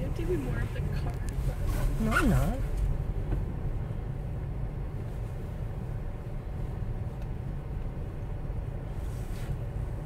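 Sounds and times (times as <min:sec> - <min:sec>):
car engine and tyres rumbling: 0:00.0 - 0:10.0.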